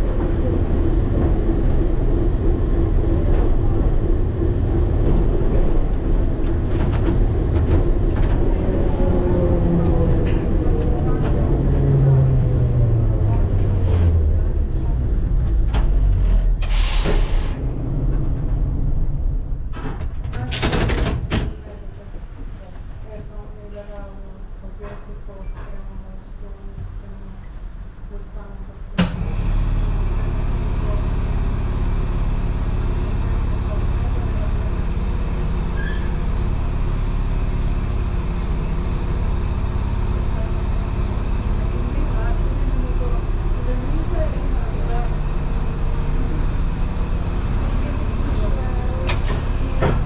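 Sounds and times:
tram motors and wheels rumbling: 0.0s - 50.0s
air brake hisses and clicks: 16.6s - 17.6s
compressed air hiss: 16.7s - 17.6s.

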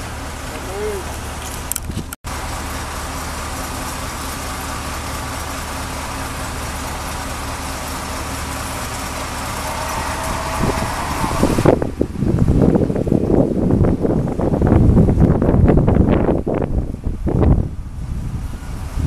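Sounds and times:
excavator diesel engine running: 0.0s - 15.2s.

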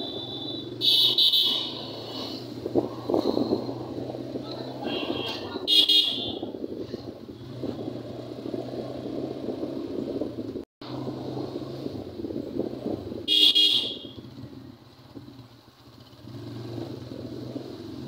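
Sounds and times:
high-pitched horn toots: 0.0s - 2.3s, 4.8s - 6.5s, 13.3s - 14.2s
traffic engine hum: 0.0s - 18.0s.

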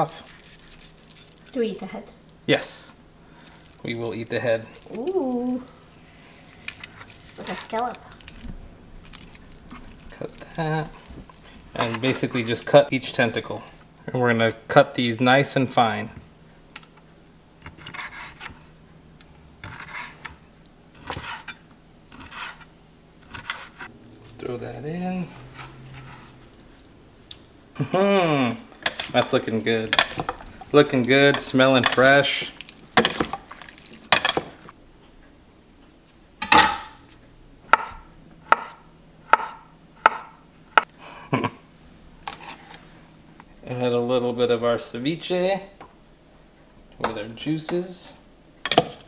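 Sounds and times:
knife chopping on cutting board: 37.7s - 40.9s.

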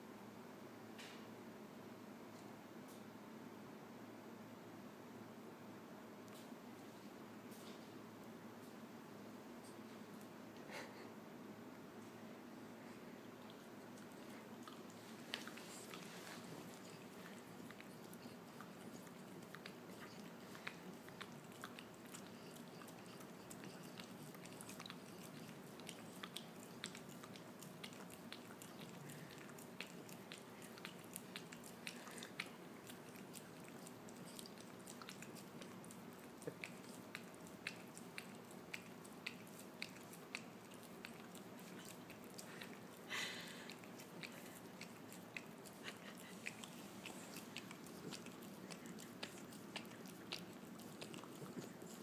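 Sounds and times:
dog licking and smacking: 13.4s - 52.0s.

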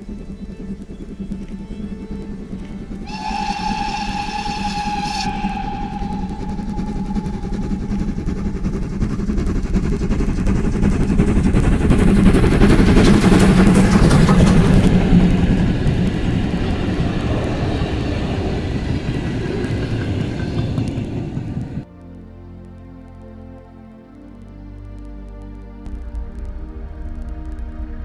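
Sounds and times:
coaches rolling on rails: 0.0s - 21.9s
steam locomotive passing: 0.0s - 21.9s.

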